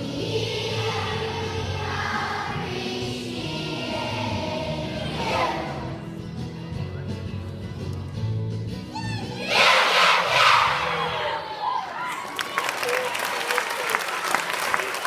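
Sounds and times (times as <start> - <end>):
children's choir singing: 0.0 - 6.1, 9.4 - 11.4.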